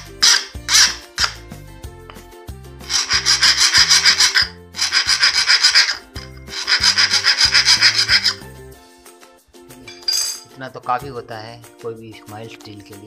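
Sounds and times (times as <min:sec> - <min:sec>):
file rasping on steel: 0:00.0 - 0:01.4, 0:02.8 - 0:08.4.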